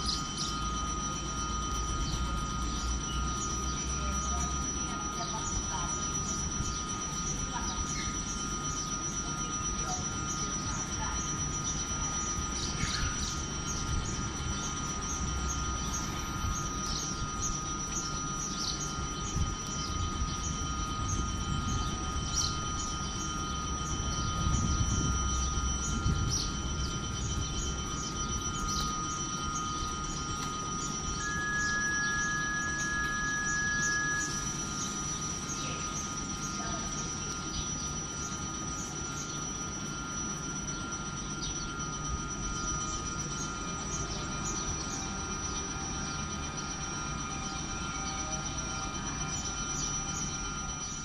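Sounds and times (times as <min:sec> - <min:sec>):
insects chirping: 0:00.0 - 0:51.0
steady high-pitched tones: 0:00.0 - 0:51.0
train low rumble: 0:09.8 - 0:38.9.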